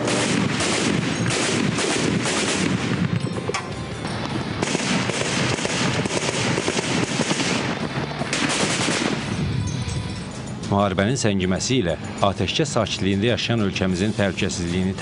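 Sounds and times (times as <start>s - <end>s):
automatic gunfire: 0.0s - 3.2s, 4.6s - 9.3s.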